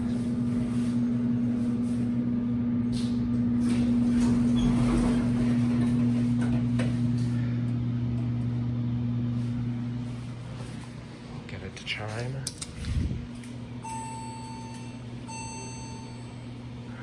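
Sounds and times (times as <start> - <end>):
steady low hum: 0.0 - 17.0
elevator doors sliding open: 2.9 - 7.3.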